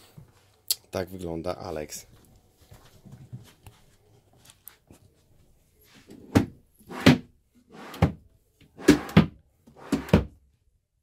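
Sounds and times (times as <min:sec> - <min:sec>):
drawers sliding on runners: 0:06.0 - 0:10.3.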